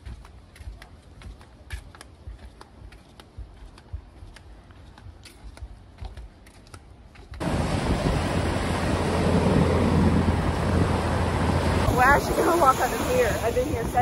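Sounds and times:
footsteps on wooden boardwalk: 0.0 - 7.4
airplane flying low overhead: 7.4 - 14.0
surf: 7.4 - 14.0
wind rushing: 7.4 - 14.0.

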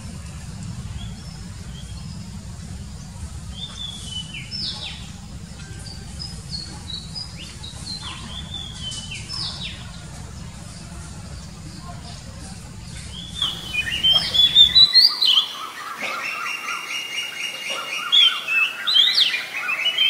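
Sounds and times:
steady low rumble: 0.0 - 14.8
bird singing whistled notes: 13.1 - 20.0.

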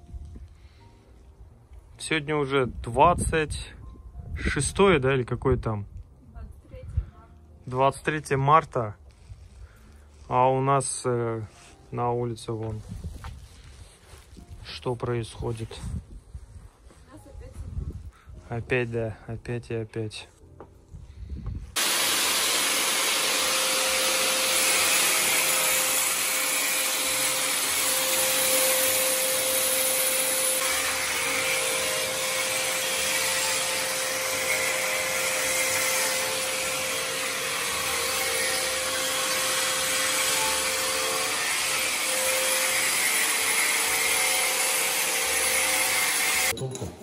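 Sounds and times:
electric motor humming: 21.8 - 46.5.

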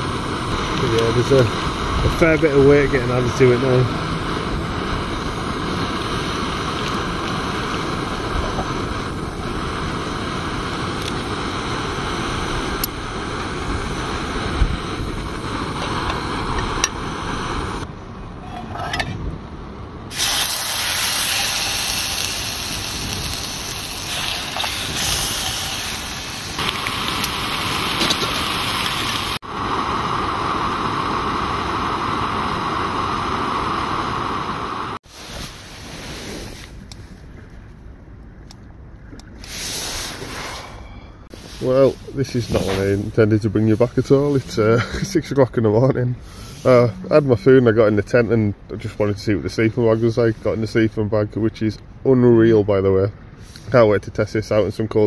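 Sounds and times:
gas burner hissing: 0.0 - 17.9, 20.1 - 37.0, 39.3 - 51.0
food sizzling and bubbling in pan: 20.1 - 35.8.

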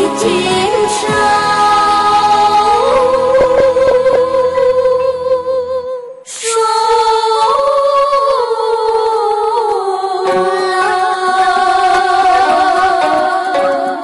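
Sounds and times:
musical accompaniment: 0.0 - 5.6, 8.9 - 14.0
girl singing: 0.0 - 14.0.

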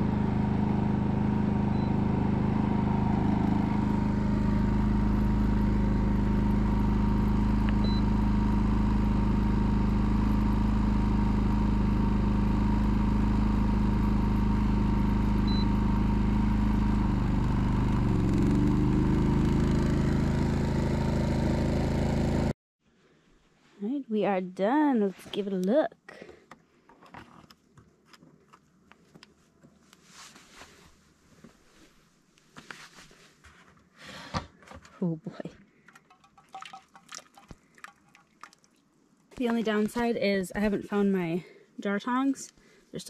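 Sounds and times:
generator engine running: 0.0 - 22.6.

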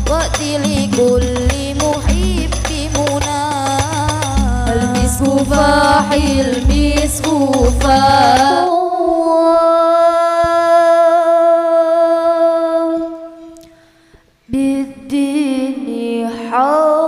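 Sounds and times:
amplified singing: 0.0 - 13.5.

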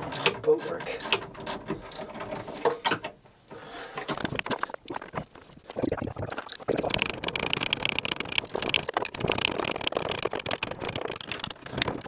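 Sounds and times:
metal tools clicking and rattling: 0.0 - 2.3.

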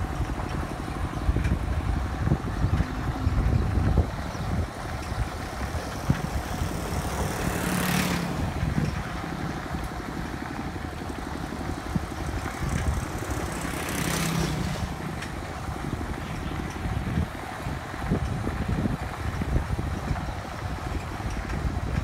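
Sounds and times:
rushes of noise: 0.0 - 17.3
vehicle engine running: 0.0 - 22.0.

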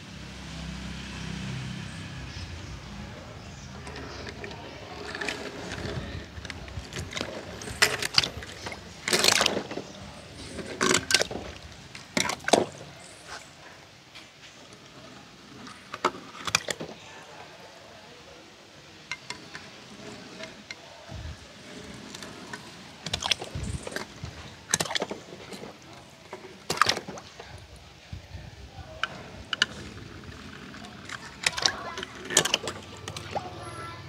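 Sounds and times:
toy cars splashing into water: 3.8 - 13.2, 22.0 - 27.8, 29.1 - 33.5.

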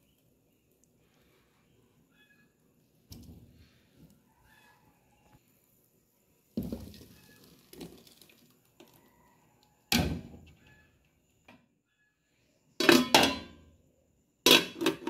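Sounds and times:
liquid poured into metal pot: 6.6 - 9.1.

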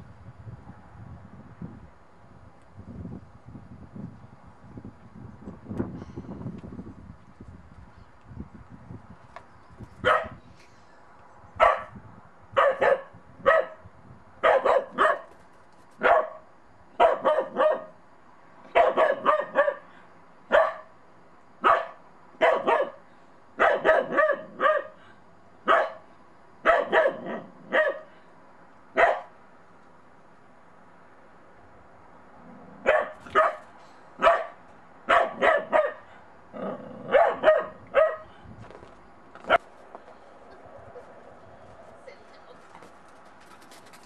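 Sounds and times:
puppy barking: 10.0 - 10.4, 11.6 - 11.9, 12.6 - 13.8, 14.4 - 15.3, 16.0 - 16.4, 17.0 - 18.0, 18.7 - 19.9, 20.5 - 20.9, 21.6 - 23.0, 23.6 - 25.0, 25.7 - 26.0, 26.6 - 28.1, 29.0 - 29.3, 32.8 - 33.6, 34.2 - 36.1, 37.1 - 38.3.

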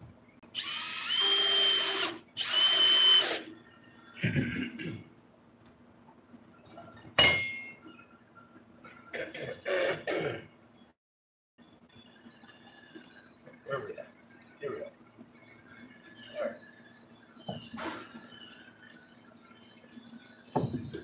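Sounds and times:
cordless drill driving screws into wood: 0.6 - 3.4.

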